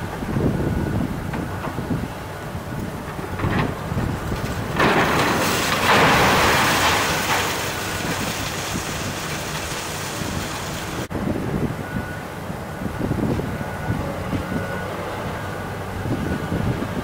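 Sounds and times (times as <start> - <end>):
excavator engine running: 0.0 - 17.0
wall crashing down: 4.7 - 9.6.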